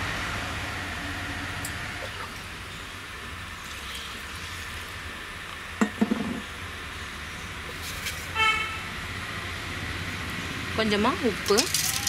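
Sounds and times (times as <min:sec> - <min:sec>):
background hum and hiss: 0:00.0 - 0:12.0.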